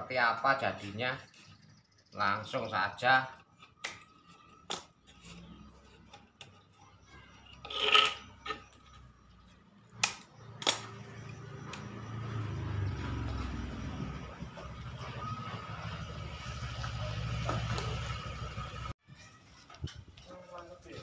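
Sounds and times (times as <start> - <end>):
scraping rub on wood: 3.4 - 9.6.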